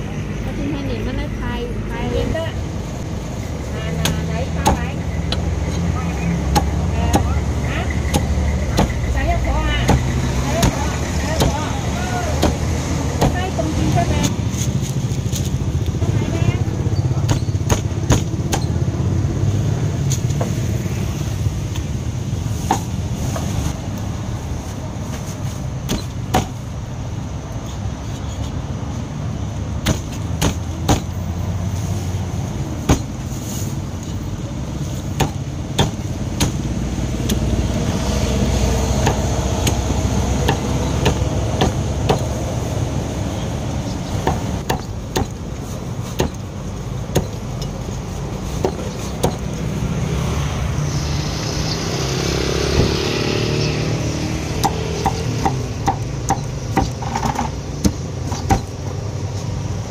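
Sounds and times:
low rumble of road traffic: 0.0s - 59.9s
cleaver chopping on wooden block: 6.5s - 7.4s, 8.1s - 9.0s, 12.4s - 13.4s, 25.9s - 26.6s, 29.8s - 31.1s, 32.9s - 33.1s, 35.2s - 36.6s, 39.0s - 42.3s, 46.2s - 46.4s, 54.6s - 58.7s.

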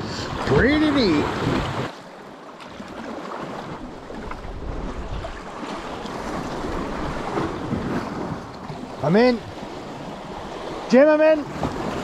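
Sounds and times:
sea water surging against shore: 0.0s - 12.0s.

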